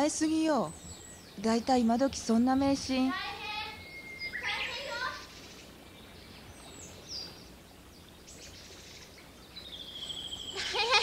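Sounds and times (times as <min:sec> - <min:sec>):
high bird chirps: 0:03.5 - 0:07.5, 0:08.3 - 0:10.8.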